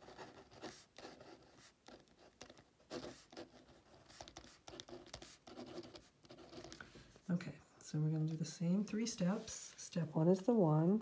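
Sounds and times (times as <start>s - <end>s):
pen scratching on paper: 0.0s - 6.8s.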